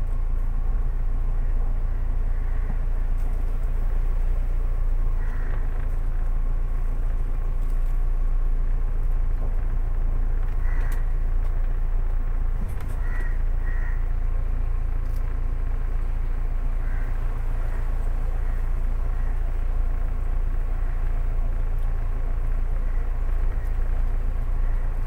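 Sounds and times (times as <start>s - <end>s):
car engine running: 0.0s - 25.0s
crow cawing: 1.8s - 3.0s, 5.0s - 6.0s, 10.6s - 11.3s, 12.6s - 14.2s, 16.7s - 19.7s, 22.7s - 23.9s, 24.6s - 25.0s.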